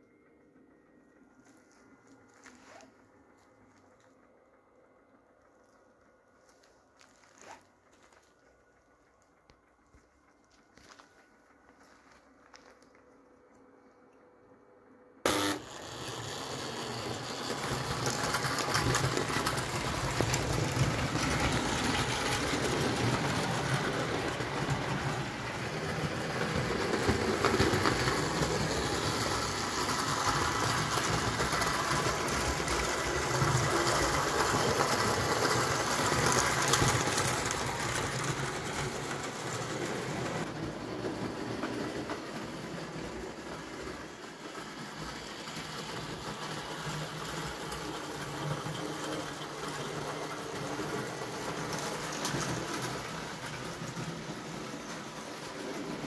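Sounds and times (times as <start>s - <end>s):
toy train motor whirring: 15.3s - 42.8s
wheels rattling over rails: 15.3s - 56.0s.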